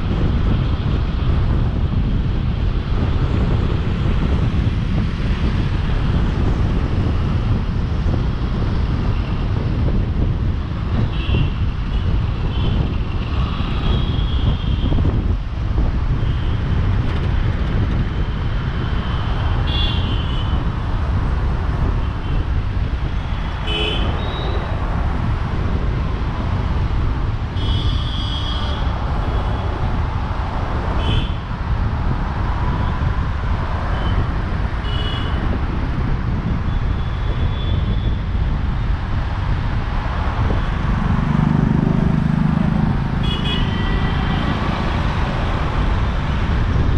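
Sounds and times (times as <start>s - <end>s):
engine and road noise rumble: 0.0s - 46.9s
vehicle horns honking: 23.6s - 24.6s, 27.6s - 28.9s, 34.8s - 35.4s, 43.2s - 44.6s.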